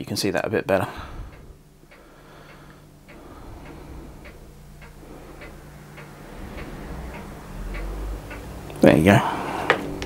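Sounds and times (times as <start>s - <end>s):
low steady hum: 0.0s - 10.0s
faint ticks: 1.3s - 8.8s.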